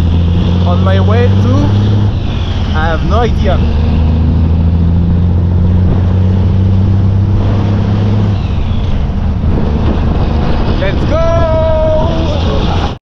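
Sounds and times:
truck engine pulling away: 0:00.0 - 0:13.0.

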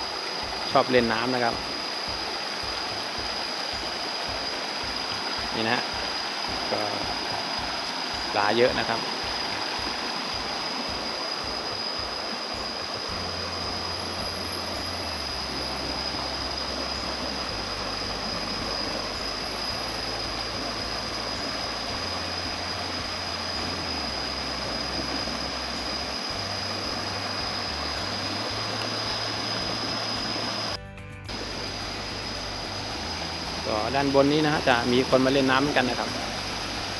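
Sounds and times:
stream rushing over boulders: 0:00.0 - 0:36.9
thin high-pitched tone: 0:00.7 - 0:36.9
low rumble: 0:02.1 - 0:36.9.

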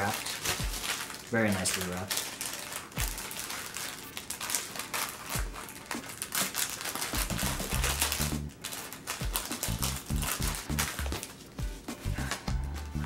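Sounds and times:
plastic packaging crinkling: 0:00.0 - 0:13.0
background music with low beat: 0:00.5 - 0:01.0, 0:03.0 - 0:03.3, 0:07.2 - 0:08.6, 0:09.2 - 0:13.0
low bass line: 0:07.3 - 0:08.6, 0:09.7 - 0:11.2, 0:12.1 - 0:13.0.

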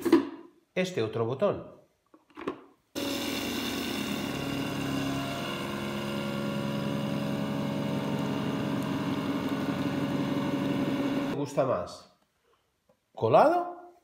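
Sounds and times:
juicer motor humming: 0:03.0 - 0:11.4.

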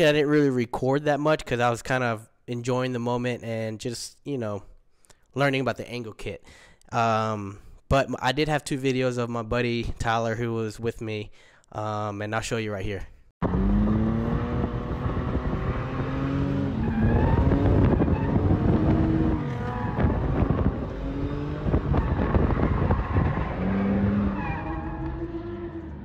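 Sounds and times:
car engine revving: 0:13.4 - 0:26.0.

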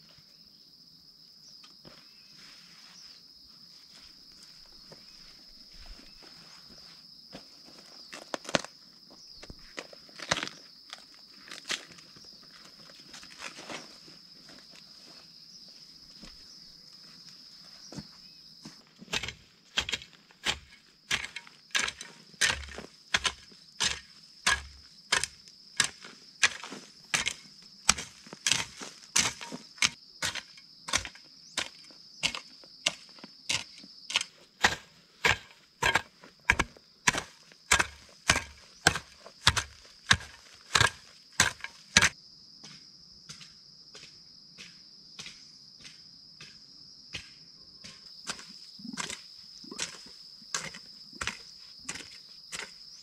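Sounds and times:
hoe chopping into soil: 0:19.1 - 0:46.6, 0:47.2 - 0:53.0.

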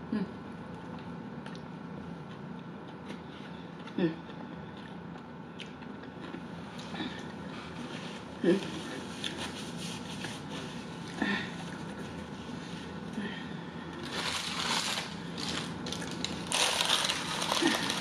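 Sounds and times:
paper bag rustling and crinkling: 0:14.0 - 0:18.0.

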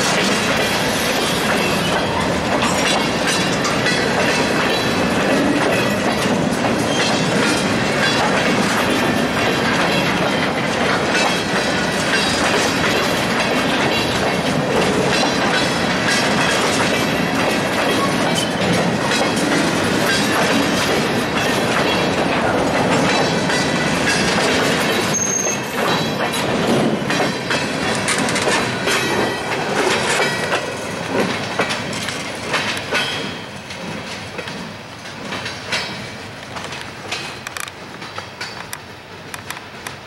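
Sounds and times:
freight train wheels clanking: 0:00.0 - 0:40.0
high wheel squeal: 0:25.0 - 0:25.8.

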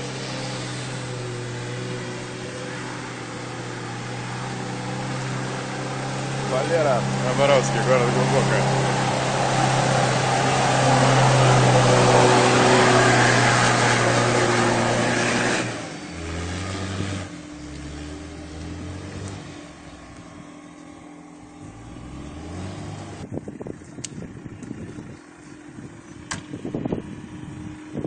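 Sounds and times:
engine revving at high revs: 0:00.0 - 0:20.2, 0:21.6 - 0:23.3.

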